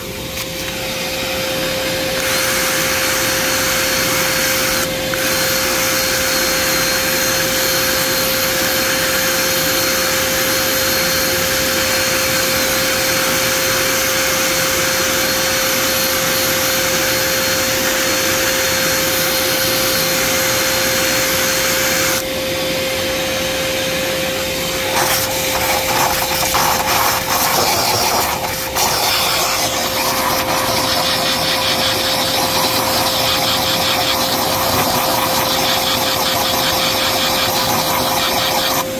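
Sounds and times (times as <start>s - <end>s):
machine motor whining: 24.4s - 38.9s
scraping and rubbing: 24.8s - 38.9s.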